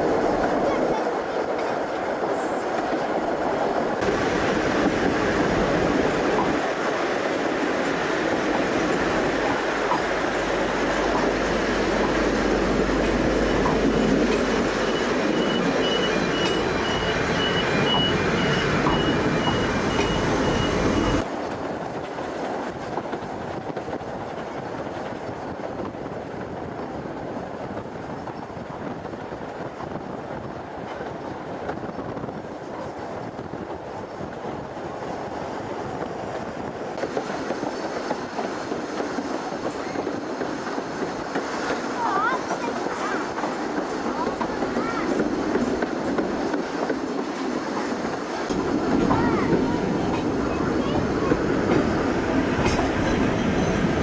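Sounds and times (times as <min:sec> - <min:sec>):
train wheels clattering on rails: 0:00.0 - 0:54.0.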